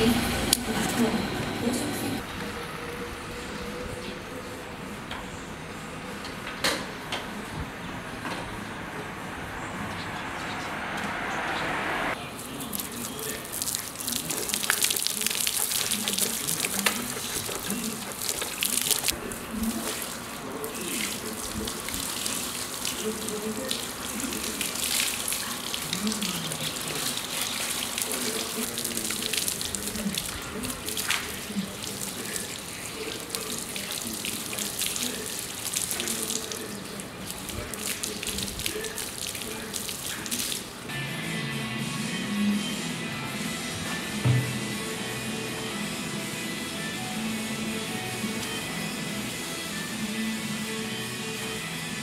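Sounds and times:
hose water splashing on bodywork: 0:12.5 - 0:40.9
hand brush scrubbing: 0:12.8 - 0:36.6.

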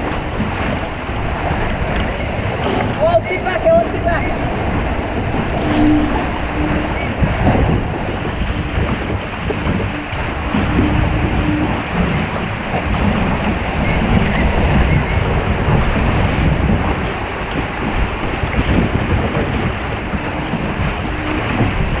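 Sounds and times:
water splashing along boat hull: 0:00.0 - 0:22.0
wind buffeting microphone: 0:00.0 - 0:22.0.

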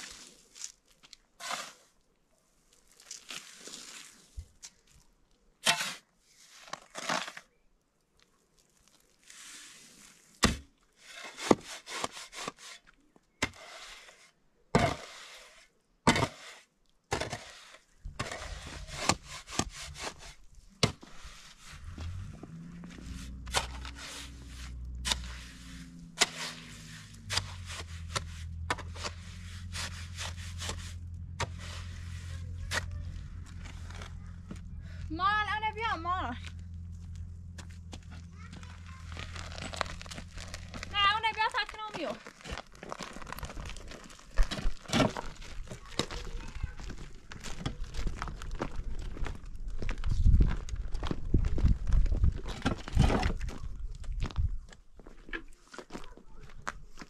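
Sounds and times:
sand tipped into metal wheelbarrow: 0:01.4 - 0:01.9
shovel scraping sand: 0:01.4 - 0:02.0, 0:03.1 - 0:04.4, 0:05.6 - 0:07.5, 0:09.2 - 0:34.5
shovel chopping cement mix: 0:05.6 - 0:06.1, 0:10.4 - 0:12.8, 0:13.4 - 0:14.0, 0:14.8 - 0:15.3, 0:16.1 - 0:21.6, 0:23.1 - 0:33.0, 0:44.4 - 0:46.4
low steady hum: 0:21.7 - 0:41.6.

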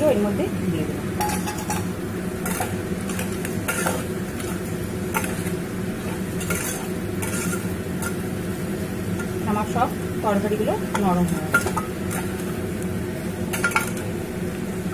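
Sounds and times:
food sizzling: 0:00.0 - 0:14.9
metal spatula scraping pot: 0:01.2 - 0:08.2.

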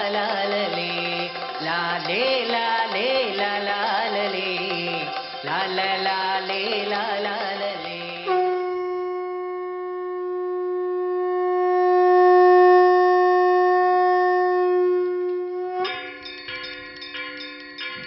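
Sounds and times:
bells ringing: 0:00.0 - 0:08.3, 0:15.8 - 0:18.0
long note on wind instrument: 0:08.2 - 0:16.0.

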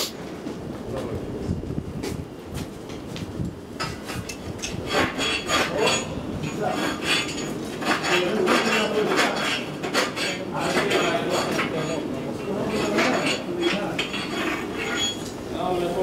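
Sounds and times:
metallic clanking and clinking: 0:03.8 - 0:15.4.

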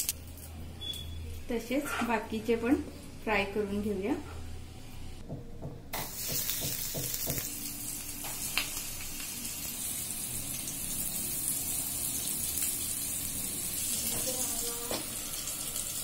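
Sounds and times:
fish sizzling in hot oil: 0:06.0 - 0:16.0.

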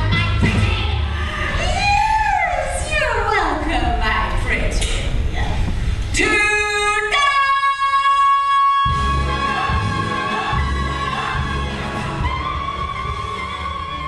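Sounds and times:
person singing show tune: 0:06.2 - 0:14.0.

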